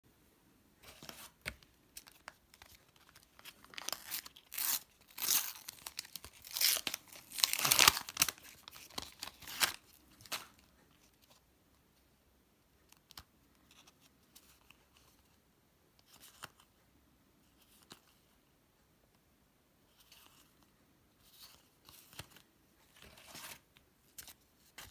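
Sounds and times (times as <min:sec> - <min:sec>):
wrapper being torn open: 0:02.0 - 0:10.5.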